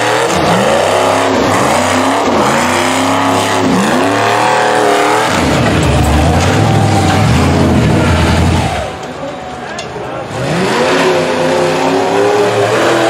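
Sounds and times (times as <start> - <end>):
buggy engine revving hard: 0.0 - 9.0, 10.2 - 13.0.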